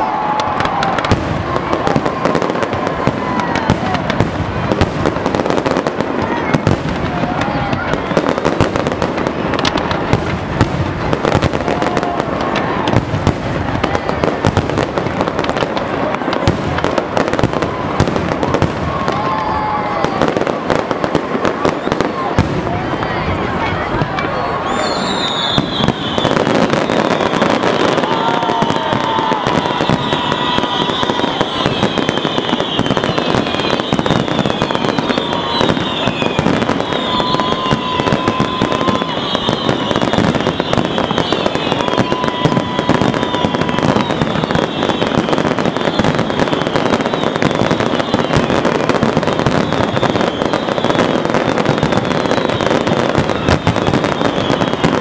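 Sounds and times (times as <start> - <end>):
firework whistles falling in pitch: 0.0 - 5.9, 6.5 - 10.0, 24.2 - 55.0
fireworks bangs and crackling: 0.0 - 55.0.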